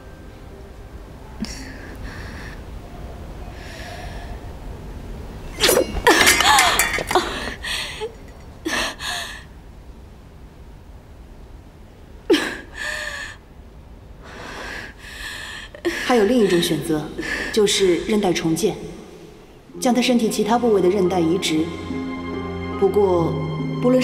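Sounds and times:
woman gasping: 7.2 - 8.1.

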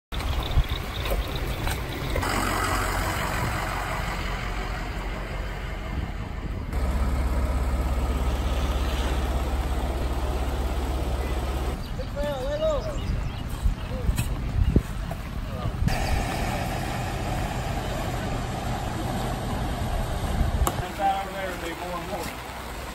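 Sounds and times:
engine running with low drone: 0.2 - 12.0, 15.1 - 22.9
rushing noise: 15.9 - 20.8.

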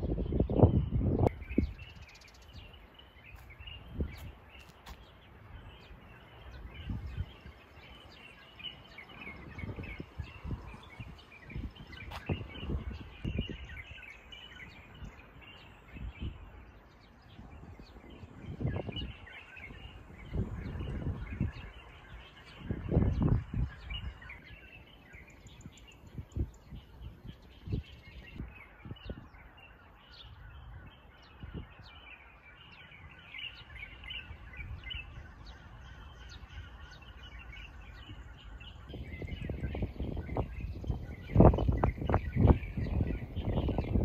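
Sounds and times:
small birds chirping: 0.0 - 44.0
wind buffeting microphone: 0.0 - 44.0.

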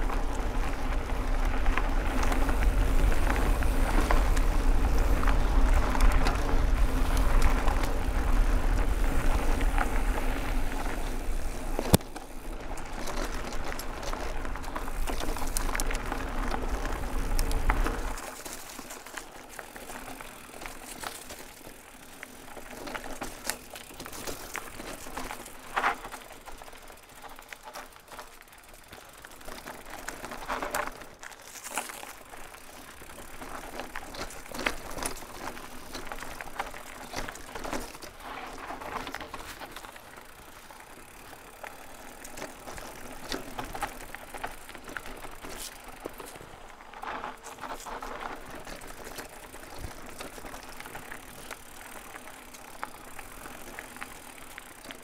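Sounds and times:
bike clicks and rattles: 0.0 - 55.0
bike tyres rolling on dirt: 0.0 - 55.0.

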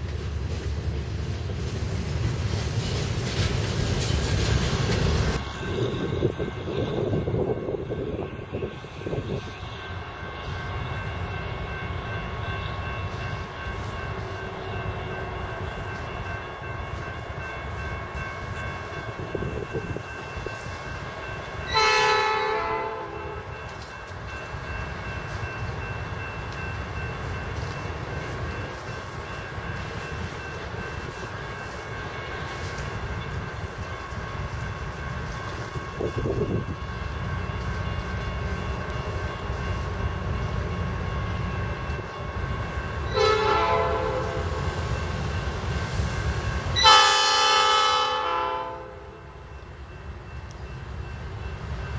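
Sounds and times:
freight train rumbling: 0.0 - 51.9
locomotive air horn: 21.7 - 23.5, 43.1 - 44.6, 46.8 - 49.2.

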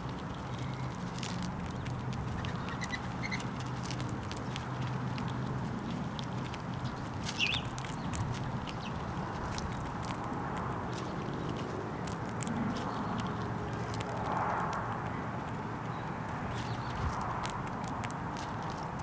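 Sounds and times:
squirrel cracking seeds: 0.0 - 19.0.

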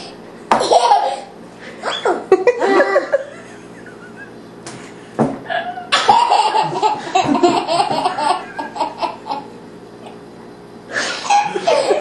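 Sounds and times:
man and toddler laughing: 0.7 - 4.4, 5.7 - 10.2, 10.9 - 12.0.

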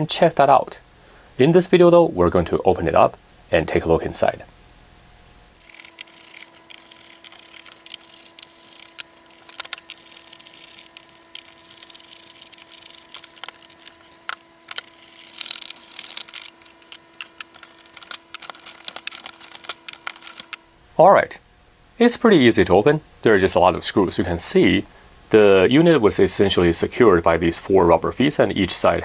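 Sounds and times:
faint steady hum: 0.0 - 29.0
screwdriver clicks and scrapes: 5.6 - 20.6
battery cells handled: 5.6 - 20.7.

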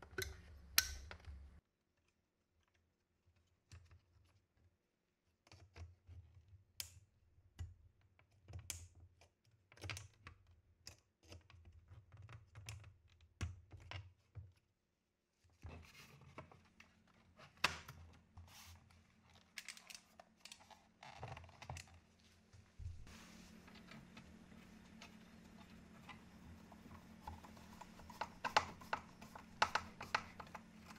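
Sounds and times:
faint steady hum: 18.1 - 30.9
hands rubbing plastic case: 20.5 - 30.9.

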